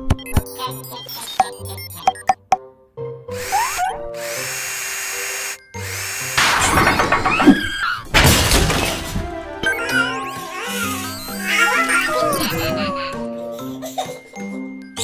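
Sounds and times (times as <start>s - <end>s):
playful background music: 0.0s - 15.0s
cartoon power drill spinning: 3.3s - 8.0s, 9.6s - 12.8s.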